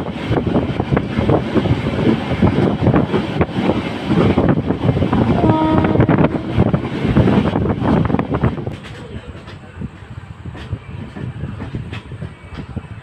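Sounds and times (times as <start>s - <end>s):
train wheels clattering on rails: 0.0s - 13.0s
wind buffeting microphone: 0.0s - 13.0s
locomotive horn: 5.3s - 6.8s.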